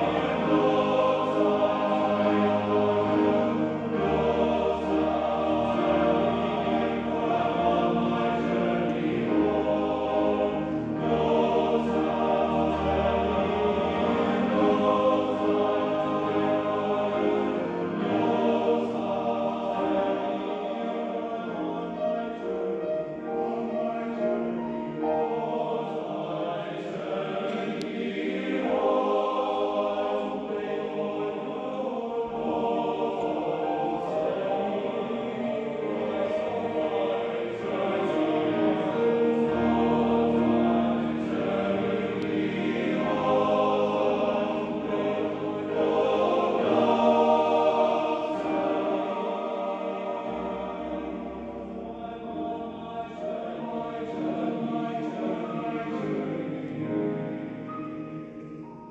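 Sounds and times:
male choir singing chords: 0.0s - 58.9s.

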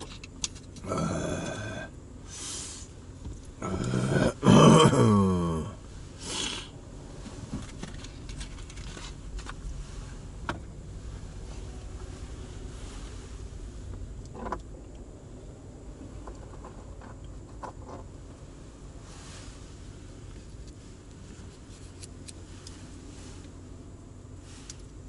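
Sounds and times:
taps clicks and rustles of handling: 0.0s - 0.8s
low steady hum: 0.0s - 25.0s.

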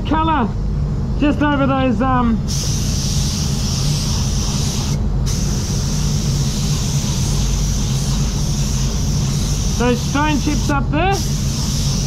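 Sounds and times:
low hum of booth fans: 0.0s - 12.0s
spray gun hissing: 2.5s - 12.0s.

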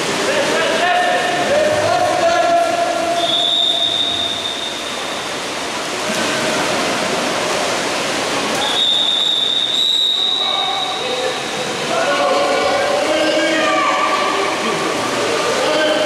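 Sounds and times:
whistle blasts: 3.2s - 5.0s, 8.6s - 11.0s.

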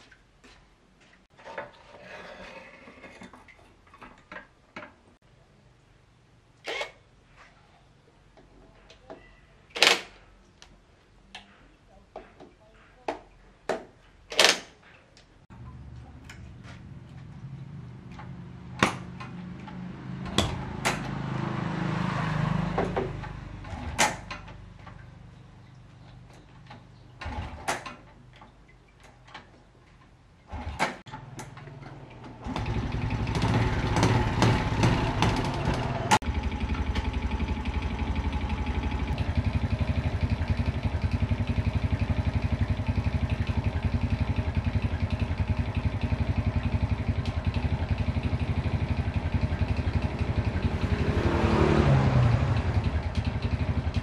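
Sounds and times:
sharp clicks and knocks: 18.1s - 21.2s
motorbike engine running: 32.4s - 54.0s.

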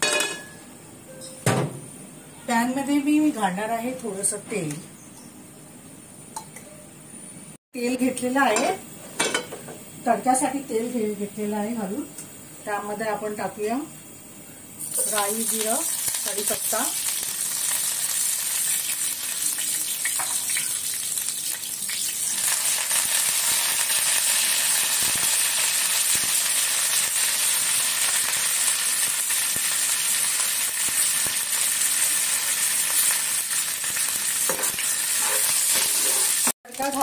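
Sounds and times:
spices sizzling in hot oil: 14.8s - 37.0s.

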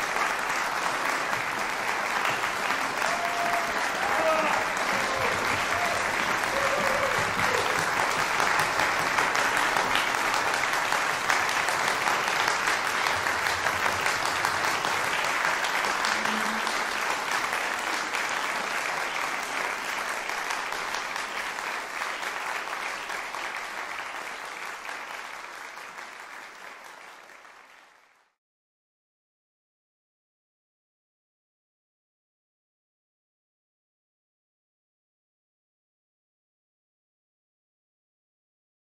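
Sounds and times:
audience applauding: 0.0s - 28.4s.

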